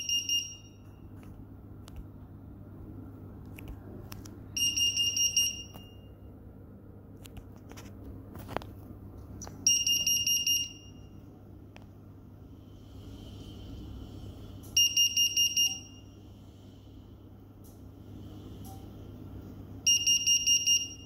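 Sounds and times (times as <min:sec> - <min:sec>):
high-pitched electronic alarm: 0:00.0 - 0:00.9, 0:04.6 - 0:06.1, 0:09.7 - 0:11.2, 0:14.8 - 0:16.2, 0:19.8 - 0:21.0.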